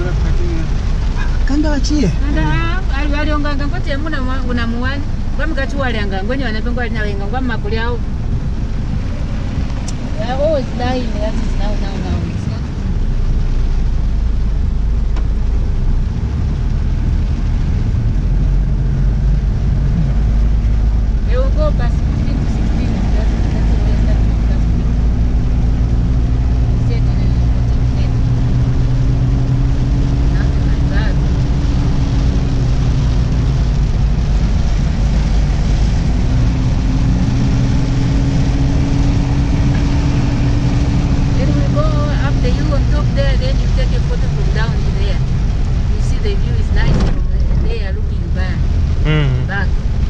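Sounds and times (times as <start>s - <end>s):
engine and road rumble: 0.0s - 50.0s
rain and wet tyres hissing: 0.0s - 50.0s.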